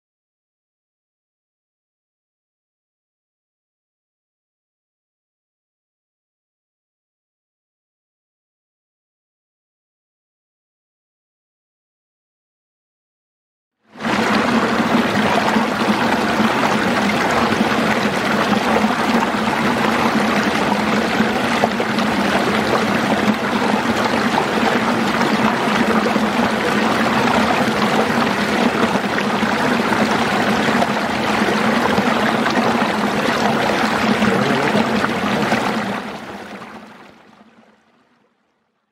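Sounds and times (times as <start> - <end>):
stream rushing over rocks: 14.0 - 37.7.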